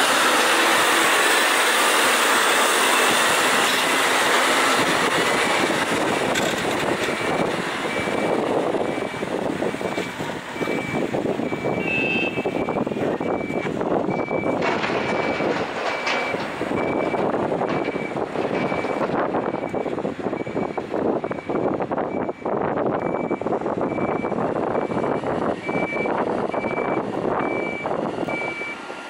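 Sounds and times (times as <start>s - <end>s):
reversing alarm beeping: 7.1s - 28.8s.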